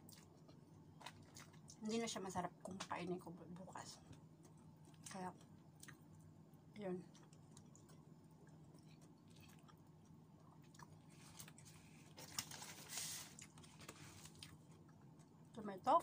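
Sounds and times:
person chewing food: 0.0s - 1.8s, 4.1s - 15.5s
small eating clicks: 0.0s - 12.4s
rustling noise: 11.2s - 14.4s.

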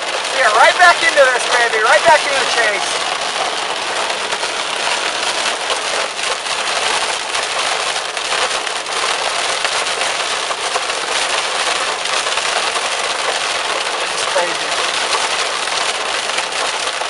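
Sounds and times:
rain and hail on car roof: 0.0s - 17.0s.

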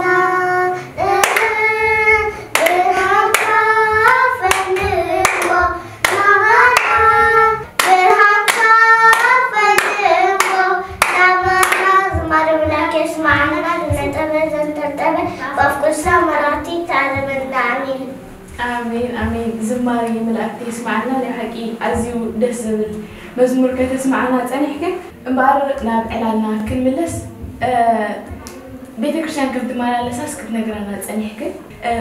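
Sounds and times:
girls singing a hymn: 0.0s - 17.5s, 18.1s - 23.0s
hands clapping in time: 7.8s - 12.2s.

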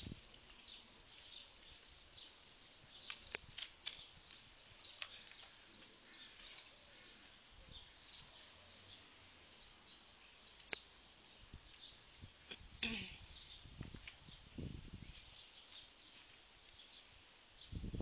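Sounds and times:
birds chirping: 0.0s - 18.0s
sharp clicks: 3.0s - 5.6s.

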